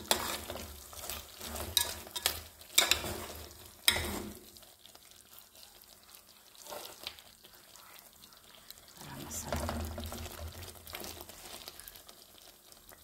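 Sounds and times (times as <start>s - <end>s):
metal spoon scraping a pot: 0.0s - 4.4s
cooking liquid sizzling: 0.0s - 13.0s.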